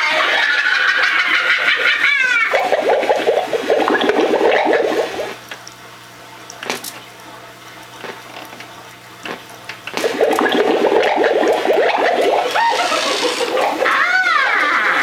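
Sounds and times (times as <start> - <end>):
bubbling gurgling sound effect: 1.6 - 5.5, 9.2 - 15.0
low steady electronic hum: 1.6 - 15.0.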